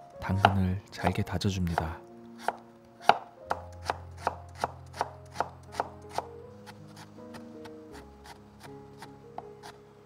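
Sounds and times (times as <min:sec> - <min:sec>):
knife chopping on wooden board: 0:01.7 - 0:07.4.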